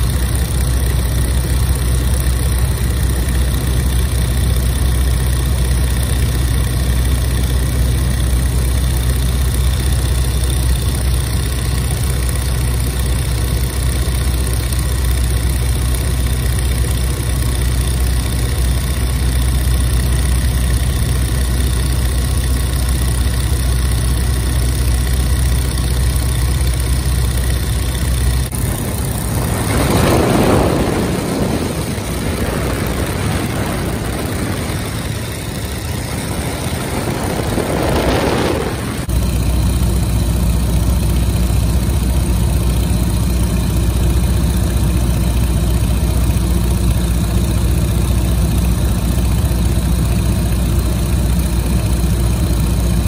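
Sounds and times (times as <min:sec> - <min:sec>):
plane engine drone: 0:00.0 - 0:53.0
rushing noise: 0:28.0 - 0:39.6.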